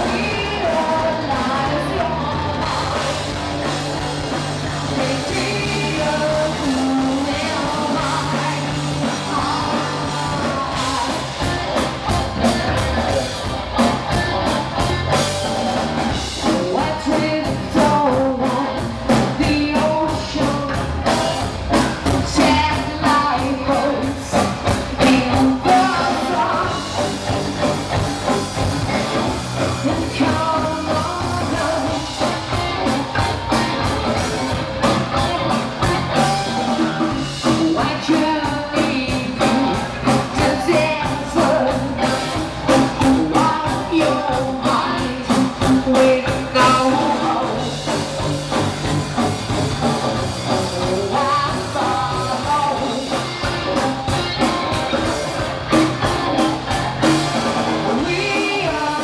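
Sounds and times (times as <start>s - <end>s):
woman singing into a microphone: 0.0s - 3.4s, 4.8s - 11.6s, 16.4s - 20.9s, 22.1s - 26.9s, 29.6s - 32.3s, 37.3s - 47.8s, 50.5s - 53.5s, 57.9s - 59.0s
bass guitar: 0.0s - 59.0s
distorted electric guitars: 0.0s - 59.0s
drums: 0.0s - 59.0s.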